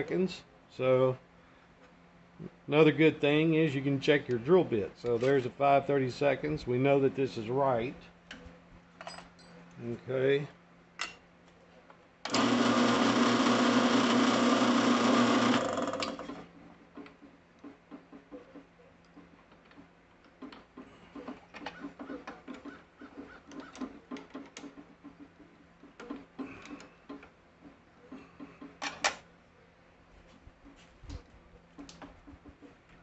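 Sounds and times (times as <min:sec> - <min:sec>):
drill press motor running: 0:12.2 - 0:16.5.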